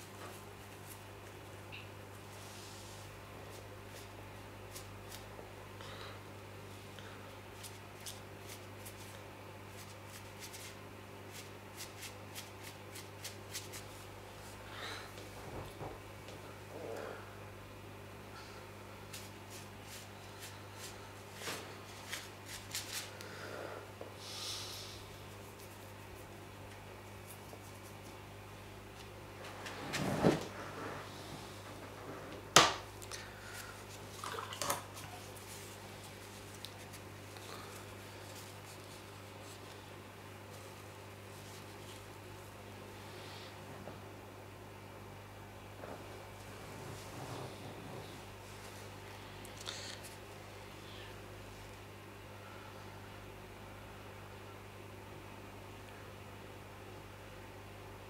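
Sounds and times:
steady low hum: 0.0s - 58.0s
brush strokes on paper: 19.1s - 23.1s, 34.9s - 39.9s
brush sloshing in water: 33.9s - 37.0s.

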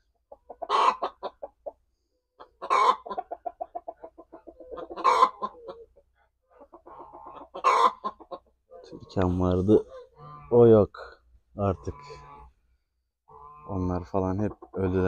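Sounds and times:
chicken clucking: 0.0s - 12.6s, 13.3s - 15.0s
chicken squawks: 0.4s - 1.8s, 2.4s - 9.2s, 9.8s - 10.7s, 11.7s - 12.6s, 13.3s - 15.0s.

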